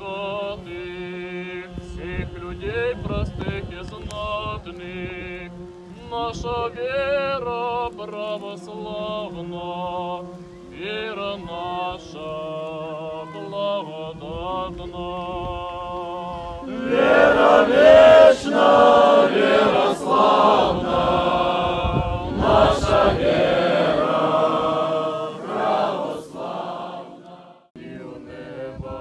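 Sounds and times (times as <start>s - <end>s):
person singing hymn: 0.0s - 29.0s
crowd of voices singing: 7.4s - 29.0s.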